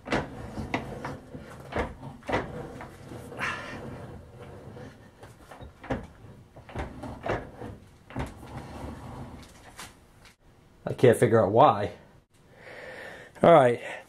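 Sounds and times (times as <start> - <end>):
lathe carriage scraping and clunking: 0.0 - 10.1.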